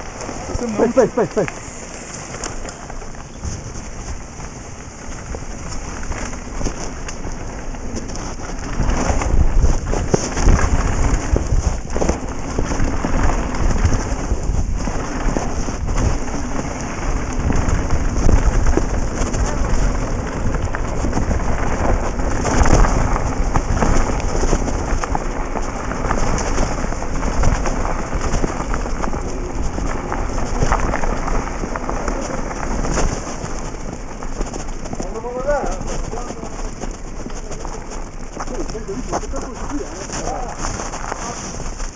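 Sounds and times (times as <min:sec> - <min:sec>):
bike rattling: 0:00.0 - 0:41.9
tyres crunching on gravel: 0:00.0 - 0:41.9
wind buffeting microphone: 0:00.0 - 0:41.9.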